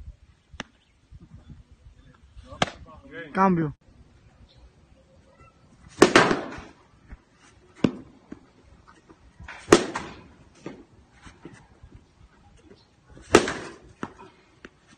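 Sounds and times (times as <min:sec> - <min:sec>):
baseball bat cracks: 0:06.0 - 0:06.8, 0:09.5 - 0:10.8, 0:13.3 - 0:14.8.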